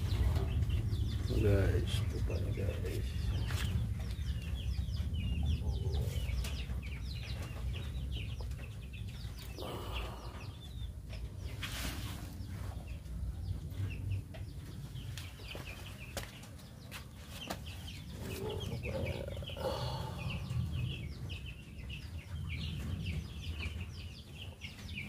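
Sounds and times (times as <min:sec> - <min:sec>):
low rumble: 0:00.0 - 0:11.5
chickens clucking: 0:00.0 - 0:25.0.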